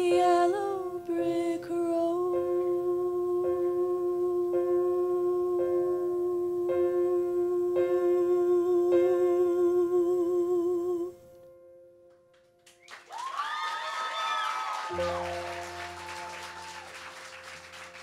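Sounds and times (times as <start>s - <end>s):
woman singing with vibrato: 0.0s - 11.2s
audience cheering and applauding: 12.6s - 18.0s.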